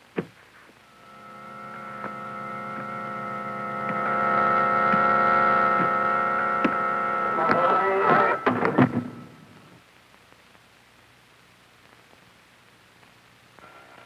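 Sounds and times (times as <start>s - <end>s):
sustained organ chord: 0.8s - 9.8s.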